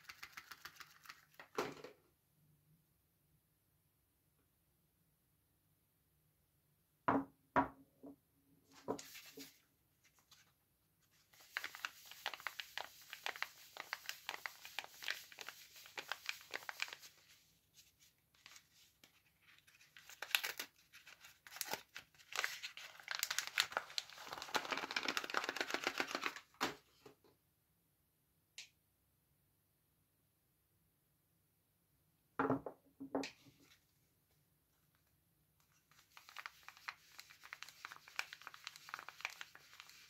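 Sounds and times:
paper wrapper crinkling and tearing: 0.0 - 1.5, 11.1 - 17.4, 18.4 - 26.6, 35.8 - 40.0.

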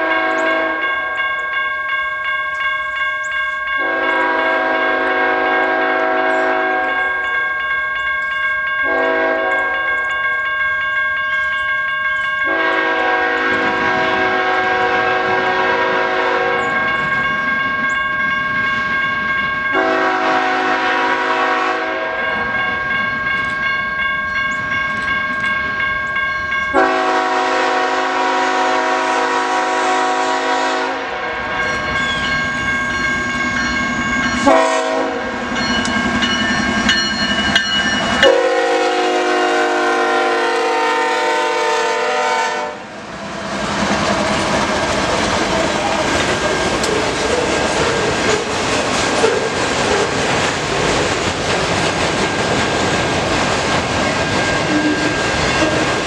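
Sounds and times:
locomotive air horn blasts: 0.0 - 0.9, 3.8 - 7.0, 8.8 - 9.8, 12.5 - 16.7, 19.7 - 22.4, 26.7 - 31.5, 34.4 - 35.4, 38.2 - 42.9
train engines and wheels rumbling: 0.0 - 56.0.

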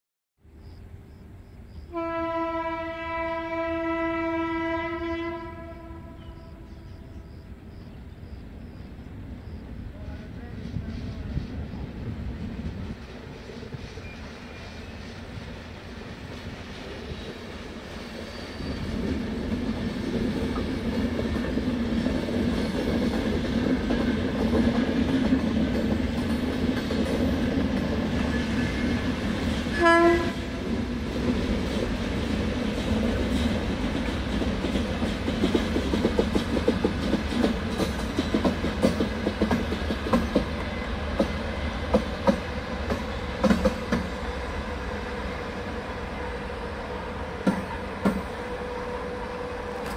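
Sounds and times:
train running on track: 0.4 - 49.9
train horn blast: 1.9 - 7.4, 29.7 - 30.6, 46.1 - 49.9
wheels clacking over rail joints: 31.7 - 44.2.

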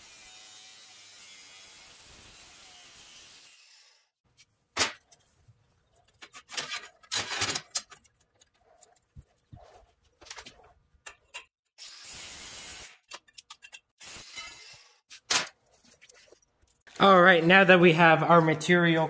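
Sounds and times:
angle grinder cutting steel: 0.0 - 4.1, 11.8 - 13.3, 14.0 - 15.1
steel pieces clanking: 6.1 - 8.5, 12.8 - 16.8.

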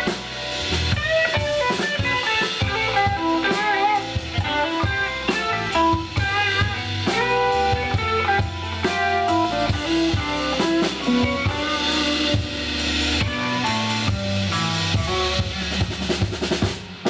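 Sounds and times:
electric guitar notes: 0.0 - 16.2
bass guitar: 0.0 - 17.0
drum kit beat: 0.0 - 17.0.

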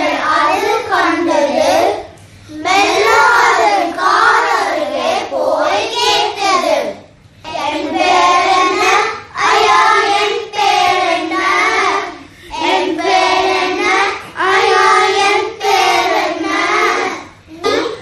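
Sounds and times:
children singing: 2.6 - 6.7, 7.5 - 17.4.

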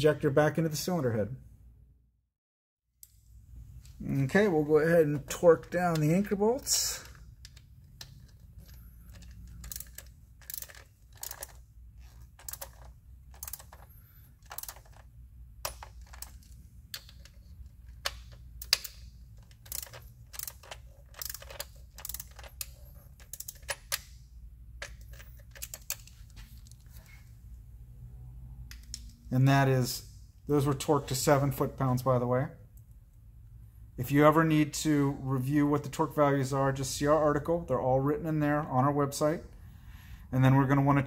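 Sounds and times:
torque wrench clicking: 18.0 - 24.1.

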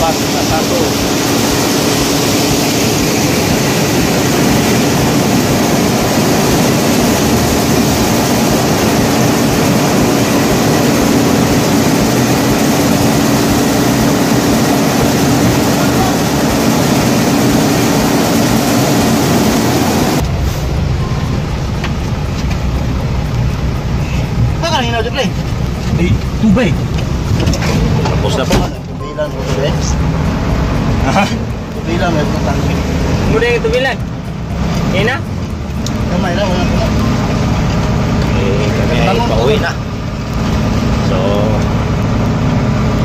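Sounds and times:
rice mill machinery running: 0.0 - 20.4, 21.4 - 43.0
truck engine rumbling: 0.0 - 43.0.

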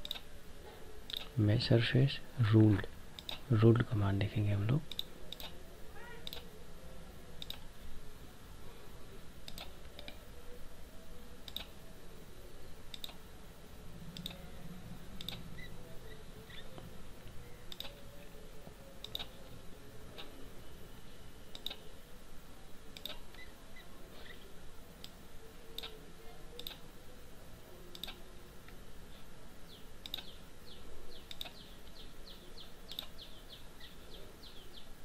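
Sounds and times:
computer mouse clicks: 0.0 - 0.3, 1.1 - 1.4, 3.2 - 3.5, 4.9 - 5.6, 6.2 - 6.5, 7.4 - 7.7, 9.4 - 10.2, 11.4 - 11.8, 12.9 - 13.2, 14.1 - 14.4, 15.2 - 15.7, 17.7 - 18.0, 19.0 - 19.5, 20.2 - 20.4, 21.5 - 21.9, 22.9 - 23.5, 25.8 - 26.0, 26.6 - 26.8, 27.9 - 28.2, 30.0 - 30.4, 31.2 - 32.0, 32.9 - 33.2
faint steady hum: 0.0 - 35.0.

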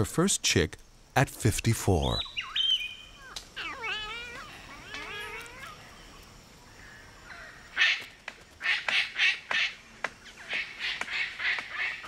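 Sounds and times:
cockatoo whistled calls: 2.2 - 5.1.

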